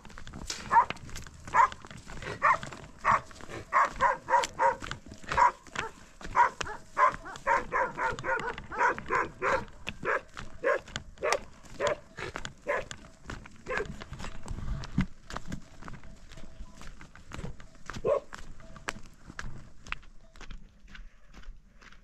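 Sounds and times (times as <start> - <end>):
dog barking: 0.6 - 13.0, 13.6 - 14.0, 18.0 - 18.3.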